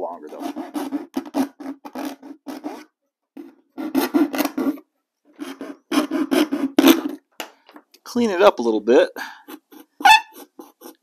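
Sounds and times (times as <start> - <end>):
saw rasping through hardboard: 0.0 - 7.2, 9.5 - 11.0.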